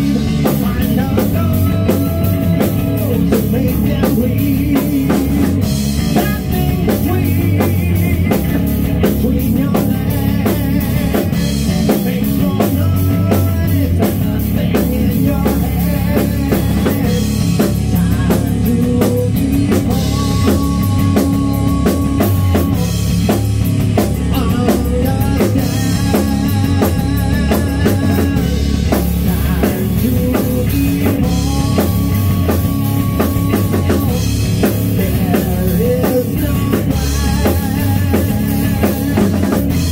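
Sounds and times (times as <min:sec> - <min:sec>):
drum kit beat: 0:00.0 - 0:39.9
electric bass: 0:00.0 - 0:39.9
electric guitar: 0:00.0 - 0:39.9.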